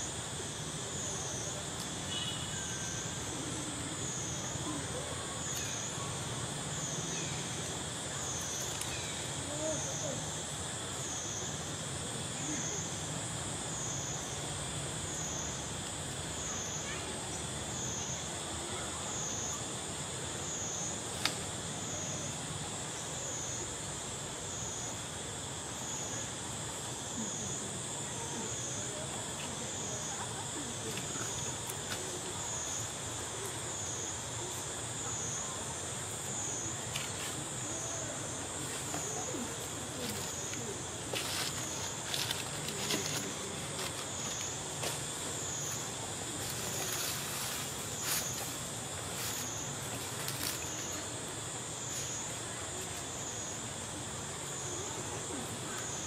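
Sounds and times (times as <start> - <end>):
high insect whine: 0.0 - 56.0
low insect buzz: 0.0 - 56.0.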